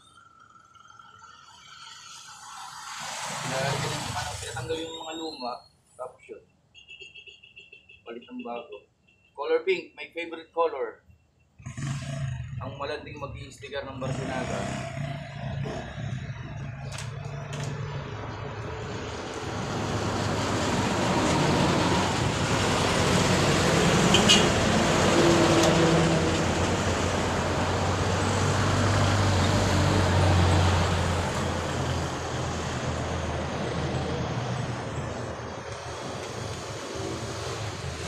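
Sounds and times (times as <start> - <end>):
traffic passing: 0.0 - 7.0, 11.6 - 38.0
short high squeak: 4.7 - 5.8.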